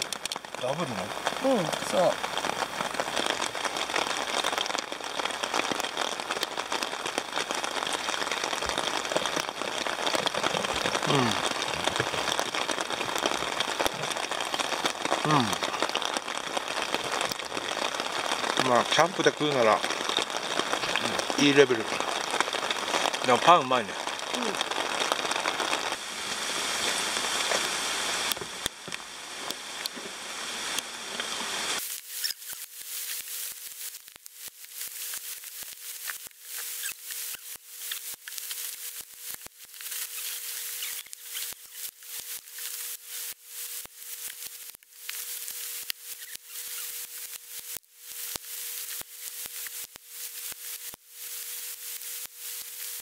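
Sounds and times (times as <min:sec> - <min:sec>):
light rain on a tent: 0:00.0 - 0:53.0.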